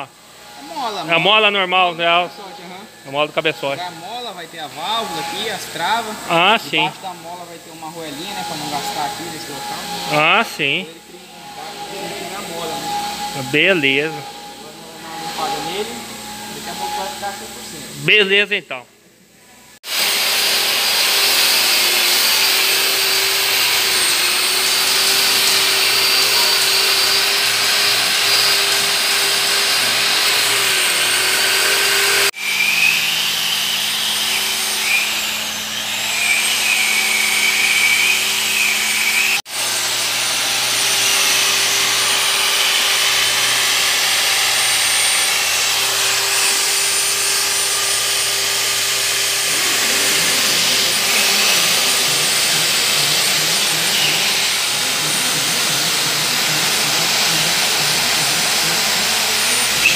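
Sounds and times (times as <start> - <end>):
drill wire brush scrubbing metal: 19.9 - 59.9.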